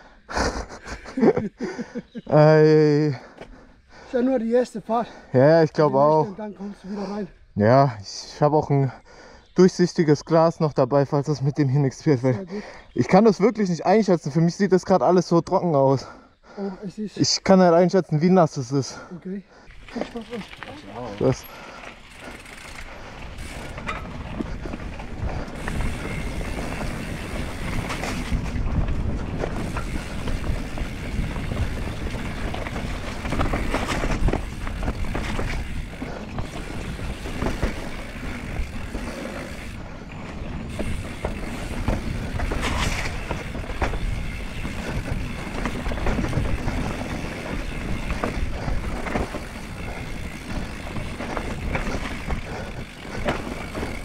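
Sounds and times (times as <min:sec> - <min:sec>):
bike chain and parts rattling: 0:18.9 - 0:54.0
wind rushing over microphone: 0:23.9 - 0:39.1.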